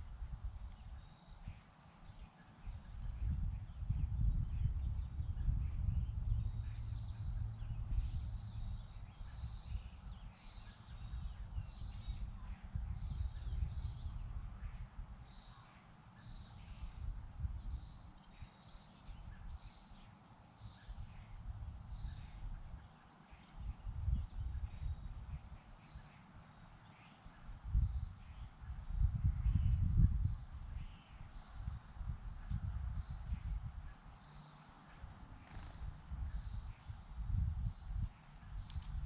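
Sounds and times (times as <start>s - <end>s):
small birds chirping: 0.6s - 39.0s
low rumble: 3.2s - 9.9s.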